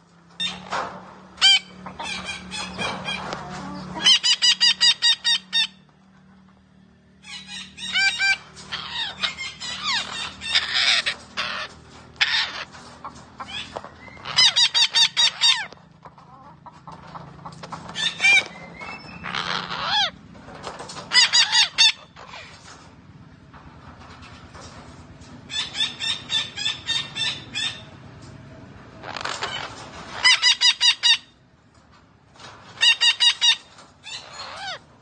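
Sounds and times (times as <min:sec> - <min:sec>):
parakeet calling: 0:07.2 - 0:12.7, 0:13.4 - 0:15.7, 0:17.9 - 0:20.2, 0:32.8 - 0:34.8.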